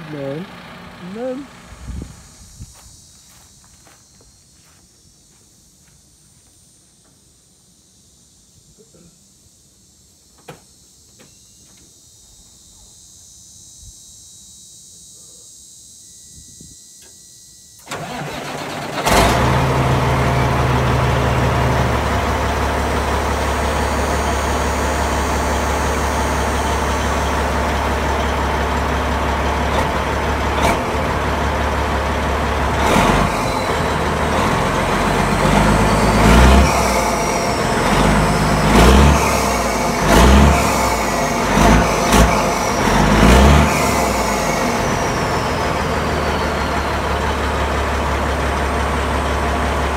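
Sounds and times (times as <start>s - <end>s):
diesel engine cranking and idling: 0.0s - 4.8s, 17.8s - 49.9s
diesel engine revving: 17.8s - 49.9s.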